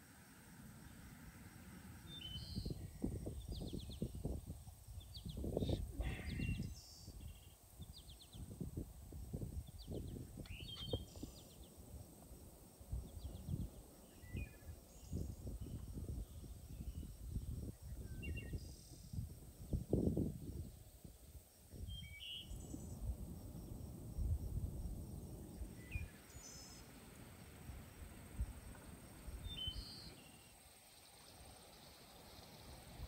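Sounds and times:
small birds chirping: 9.6 - 11.8, 28.7 - 33.0.

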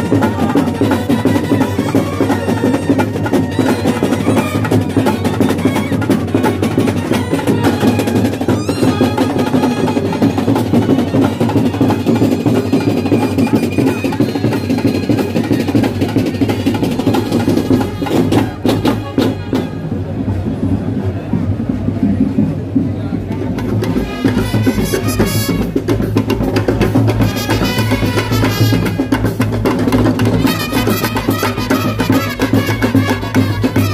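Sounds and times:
festival music: 0.0 - 33.9
rapid continuous drumming: 0.0 - 33.9.

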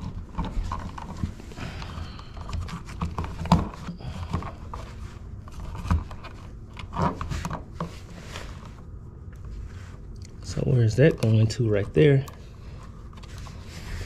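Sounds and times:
wires rustling and scraping: 0.0 - 14.0.

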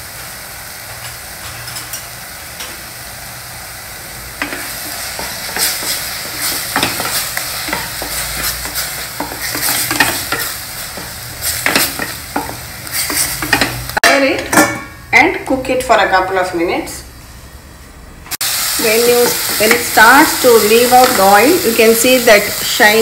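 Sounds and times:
spice paste sizzling in oil: 0.0 - 14.0, 18.4 - 23.0
spatula scraping pan: 4.4 - 14.9.

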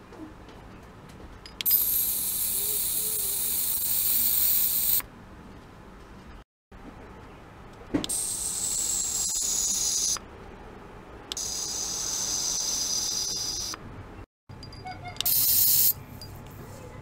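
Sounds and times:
ultrasonic probe hissing and whining: 1.7 - 5.0, 8.1 - 10.2, 11.4 - 13.8.

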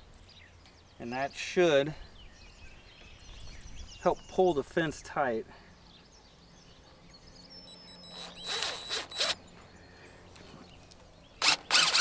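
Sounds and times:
impact driver motor whine: 8.0 - 9.4, 11.4 - 12.0.

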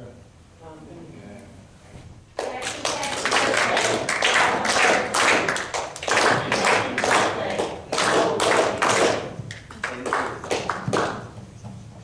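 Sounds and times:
congregation applauding: 2.4 - 11.4.

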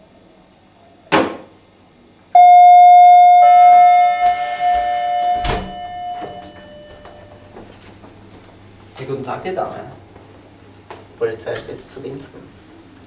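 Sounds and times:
doorbell ding-dong chime: 2.4 - 7.6.

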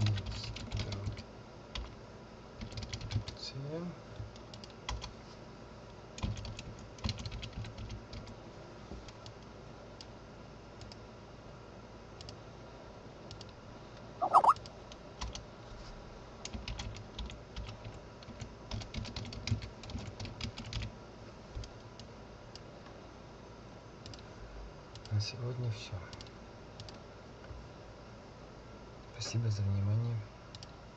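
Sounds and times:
brief pitched sound: 14.2 - 14.6.

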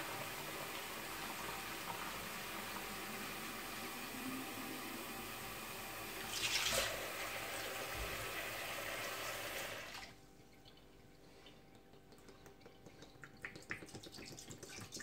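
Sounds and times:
tap water running into sink: 0.0 - 10.2.

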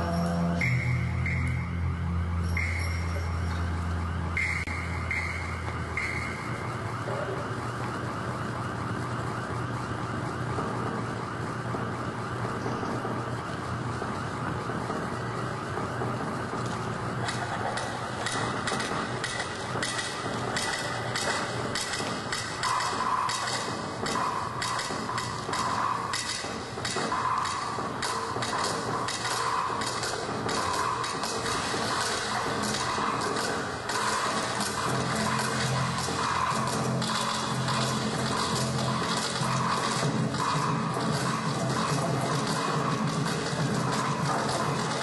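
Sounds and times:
low drone: 0.0 - 8.2, 27.2 - 45.0
wailing siren-like sound: 0.0 - 12.4.

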